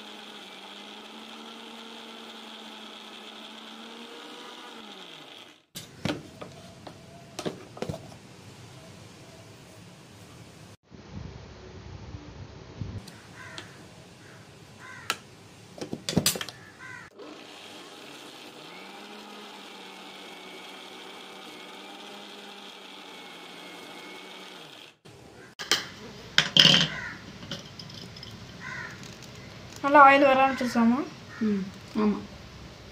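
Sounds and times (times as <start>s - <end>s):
electric mixer grinder running: 0.0s - 6.9s, 16.8s - 25.1s
steel jar and lid clattering: 25.6s - 28.6s.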